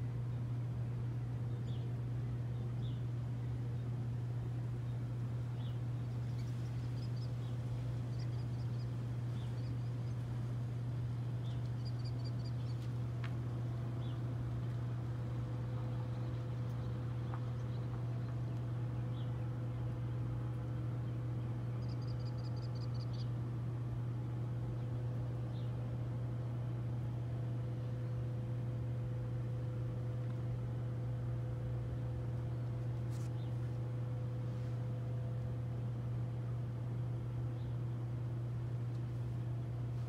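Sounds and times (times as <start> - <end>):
low hum: 0.0 - 40.0
birds chirping: 1.3 - 23.4, 24.6 - 25.8, 32.4 - 34.4.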